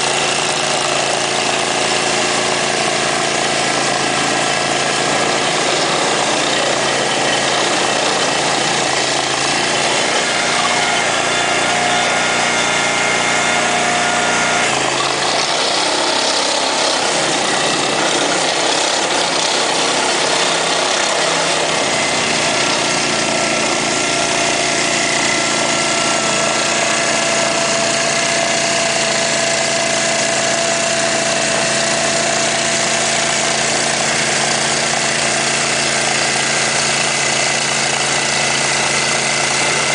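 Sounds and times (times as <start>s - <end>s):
digging machine engine running: 0.0s - 39.9s.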